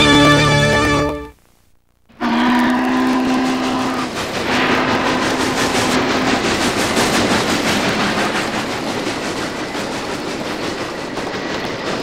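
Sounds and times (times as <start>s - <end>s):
train wheels clattering: 2.6s - 12.0s.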